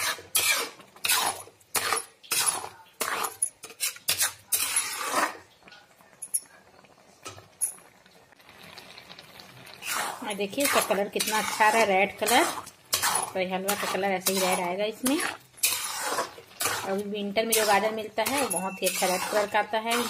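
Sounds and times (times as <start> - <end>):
metal spoon scraping a pan: 0.0 - 5.6, 9.7 - 20.0.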